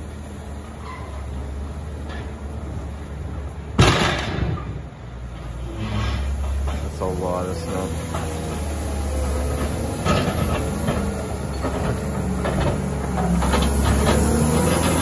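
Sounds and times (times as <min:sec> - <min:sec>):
diesel engine under load: 0:00.0 - 0:15.0
plow blade clanks: 0:03.8 - 0:15.0.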